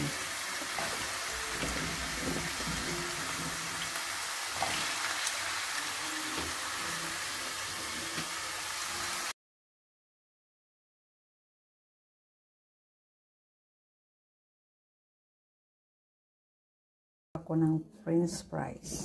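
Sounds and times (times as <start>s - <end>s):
potatoes sizzling in hot oil: 0.0s - 9.3s.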